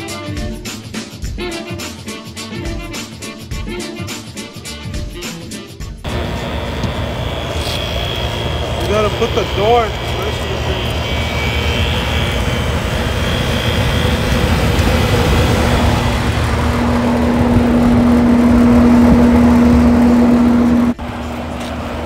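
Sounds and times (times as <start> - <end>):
fan air rushing: 6.1 - 22.0
steady hum: 6.1 - 22.0.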